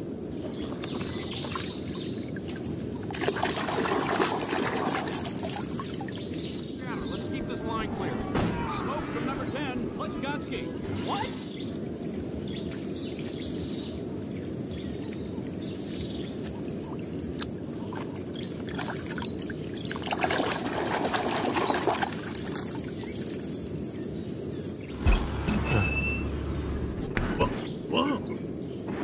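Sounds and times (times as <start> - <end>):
muddy water splashing: 0.6 - 9.3, 16.9 - 23.5.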